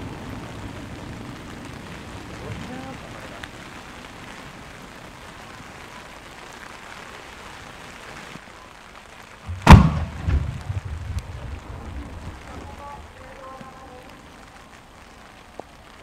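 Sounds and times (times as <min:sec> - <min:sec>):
heavy rain hissing: 0:00.0 - 0:16.0
firework shell bursting: 0:09.5 - 0:11.5
smaller firework bang: 0:09.5 - 0:12.7.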